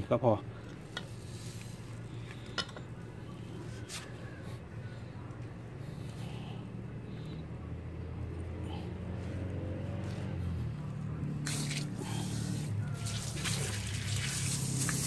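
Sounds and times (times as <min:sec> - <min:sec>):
water spraying hiss: 0:11.4 - 0:15.0
pump motor humming: 0:11.5 - 0:15.0.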